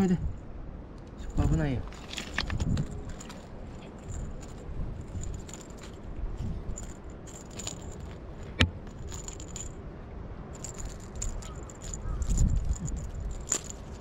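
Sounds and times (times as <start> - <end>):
low steady rumble: 0.0 - 14.0
toy rattling and clicking: 1.2 - 9.8, 10.6 - 14.0
cat scratching on concrete: 10.6 - 14.0.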